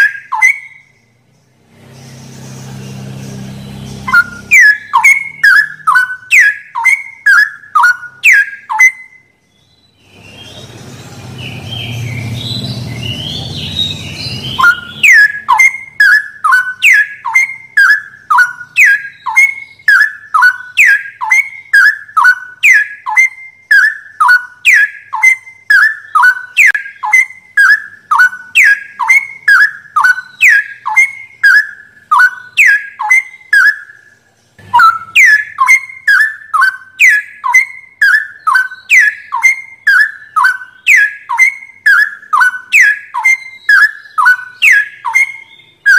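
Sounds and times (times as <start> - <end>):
bird whistling falling notes: 1.7 - 9.2, 10.0 - 34.0, 34.6 - 45.9.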